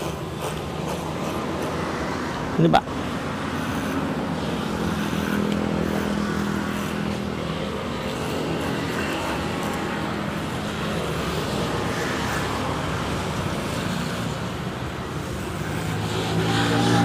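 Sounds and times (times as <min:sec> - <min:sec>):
electric hair clipper buzzing: 0:07.9 - 0:11.4.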